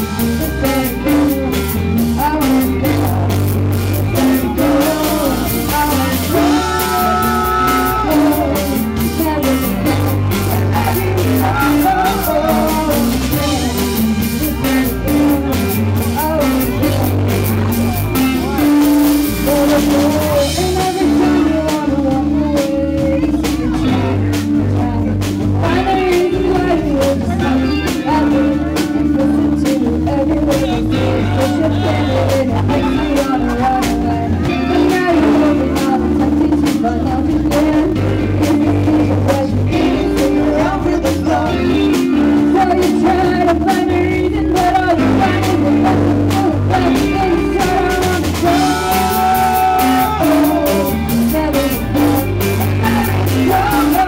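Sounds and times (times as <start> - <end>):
drums: 0.0 - 54.0
electric guitar: 0.0 - 54.0
woman singing into a microphone: 0.2 - 17.3, 18.3 - 54.0.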